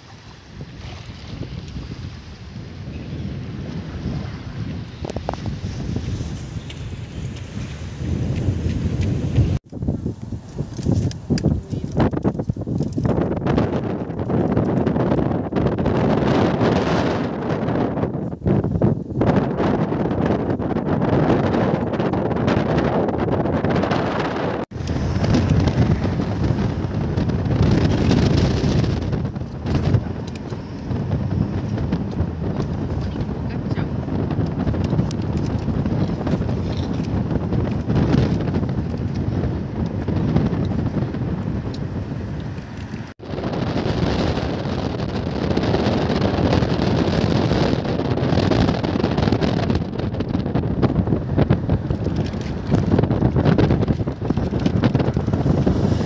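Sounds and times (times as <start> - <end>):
wind buffeting microphone: 0.0 - 56.0
car driving rumble: 24.7 - 48.0.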